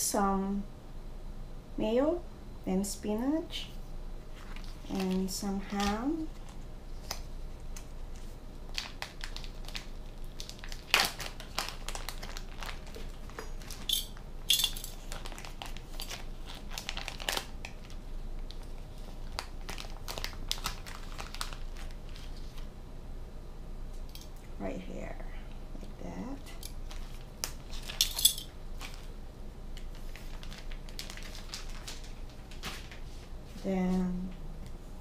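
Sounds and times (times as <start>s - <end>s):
plastic bag crinkling: 4.3s - 7.2s, 7.8s - 22.6s, 26.7s - 29.2s, 29.8s - 33.2s.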